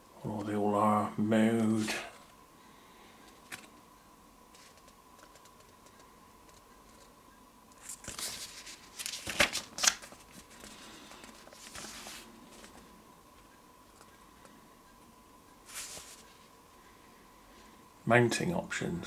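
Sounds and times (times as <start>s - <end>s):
paper pages turning: 4.5s - 7.1s, 7.8s - 12.8s, 15.7s - 16.4s.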